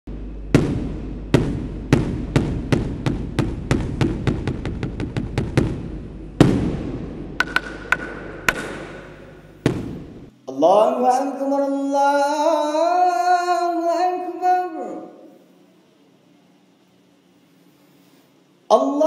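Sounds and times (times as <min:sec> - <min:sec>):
large drum beating: 0:00.1 - 0:10.3.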